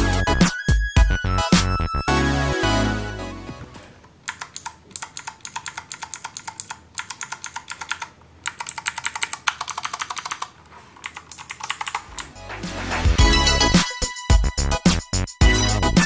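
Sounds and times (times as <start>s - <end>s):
mechanical keyboard clicking: 4.2s - 12.3s.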